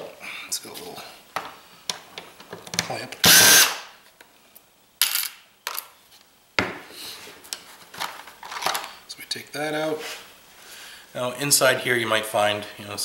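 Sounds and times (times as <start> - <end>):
handheld power tool whirring: 3.2 - 3.9.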